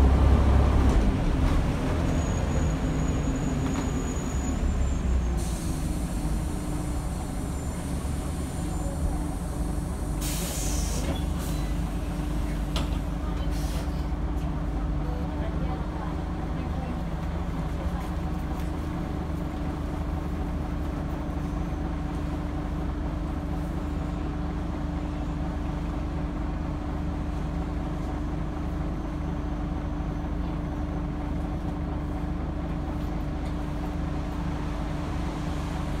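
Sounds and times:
bus diesel engine idling: 0:00.0 - 0:36.0.

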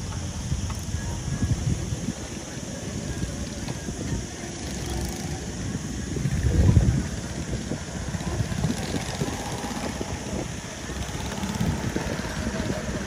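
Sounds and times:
go-kart engines running: 0:00.0 - 0:13.0
go-kart passing close by: 0:04.4 - 0:13.0.

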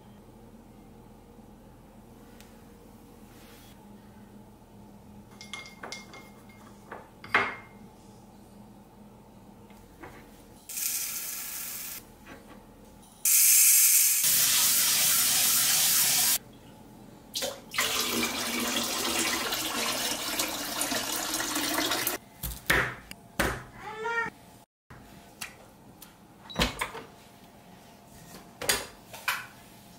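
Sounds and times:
faucet water splashing into sink: 0:17.4 - 0:22.2.

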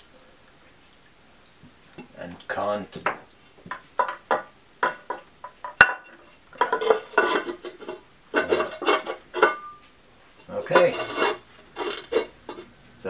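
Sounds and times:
ceramic knocking and clinking: 0:03.0 - 0:09.8
ceramic ringing: 0:04.0 - 0:09.8, 0:10.4 - 0:12.7.

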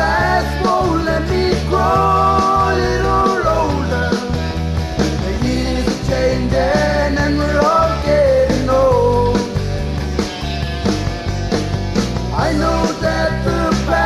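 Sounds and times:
person singing: 0:00.0 - 0:04.4, 0:05.2 - 0:09.6, 0:12.3 - 0:14.0
bass notes: 0:00.0 - 0:14.0.

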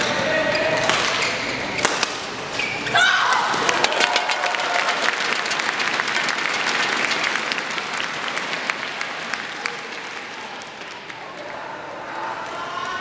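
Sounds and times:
audience applauding: 0:03.6 - 0:11.3.

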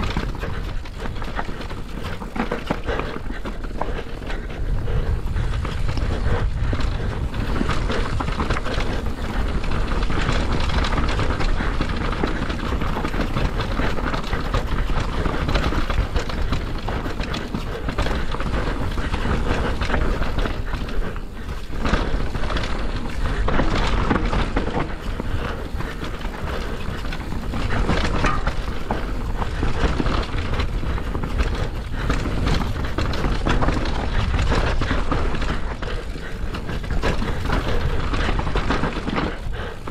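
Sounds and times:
bike chain and frame rattling: 0:00.0 - 0:39.9
wind buffeting microphone: 0:00.0 - 0:39.9.

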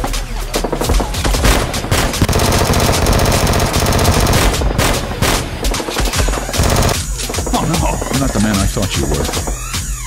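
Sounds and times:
automatic gunfire: 0:00.7 - 0:07.5.

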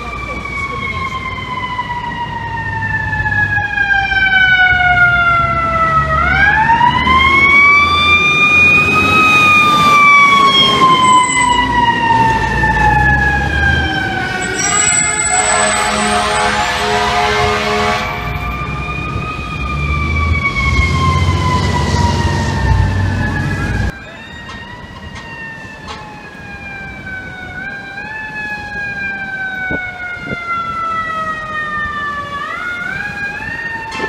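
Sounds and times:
quieter emergency siren wailing: 0:00.0 - 0:34.0
siren wailing: 0:00.0 - 0:34.0
truck engine rumble: 0:05.2 - 0:33.8
air horn blast: 0:14.4 - 0:18.5.

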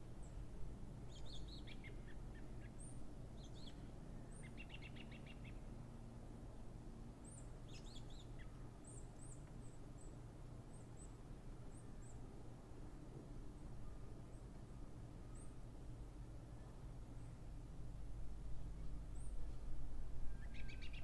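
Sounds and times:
small songbirds chirping: 0:00.2 - 0:05.7, 0:07.2 - 0:12.2, 0:20.4 - 0:21.0
low background rumble: 0:11.8 - 0:21.0.

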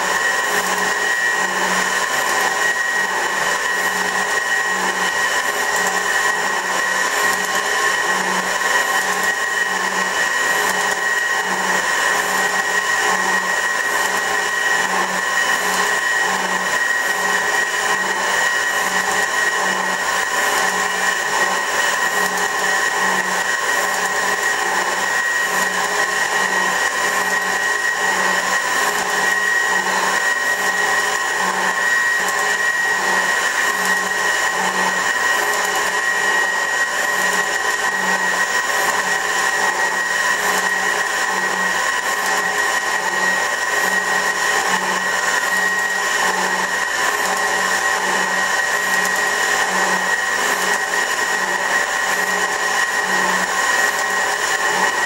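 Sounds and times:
metal shaper machine whining: 0:00.0 - 0:55.0.

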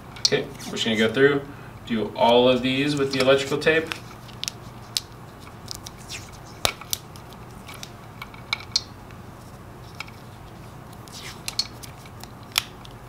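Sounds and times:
electrical tape peeling: 0:02.2 - 0:08.0, 0:09.4 - 0:13.0.

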